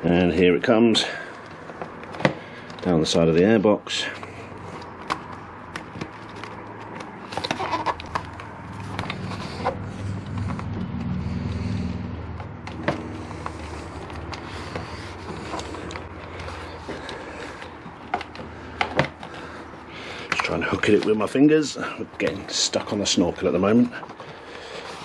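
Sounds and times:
cable rubbing and clicking on plastic: 0:04.6 - 0:11.1, 0:12.3 - 0:19.4
low rumble: 0:08.6 - 0:13.8.

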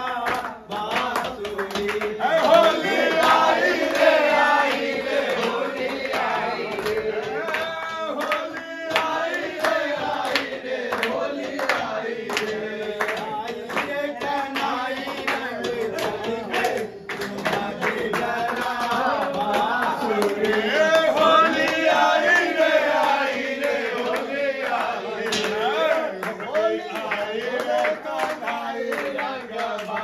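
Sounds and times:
clapped beat: 0:00.0 - 0:30.0
men singing folk song: 0:00.0 - 0:30.0.

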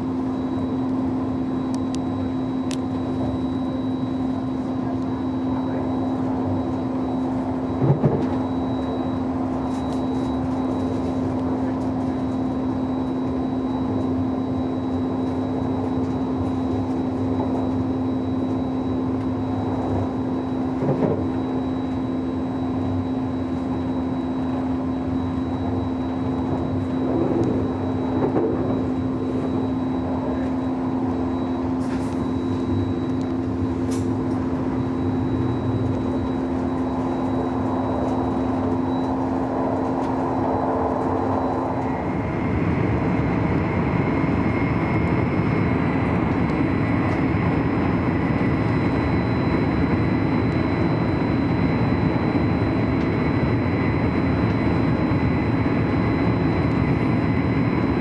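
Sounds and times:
constant hum: 0:00.0 - 0:58.0
train rolling rumble: 0:27.0 - 0:29.5.

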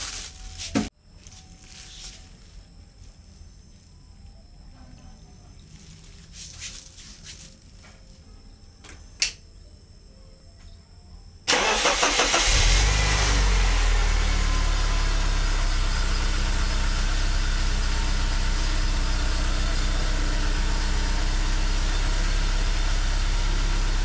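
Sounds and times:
car engine cranking and running: 0:11.5 - 0:24.0.

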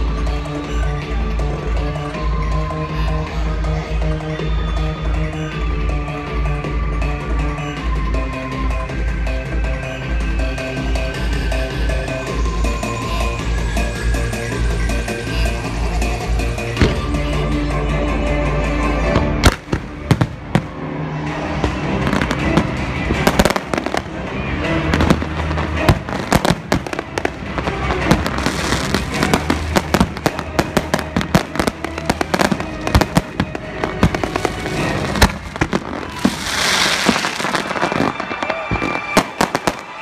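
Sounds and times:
music playing: 0:00.0 - 0:40.0
fireworks booming and cracking: 0:19.2 - 0:20.9, 0:21.5 - 0:40.0
fireworks crackling: 0:19.4 - 0:40.0.

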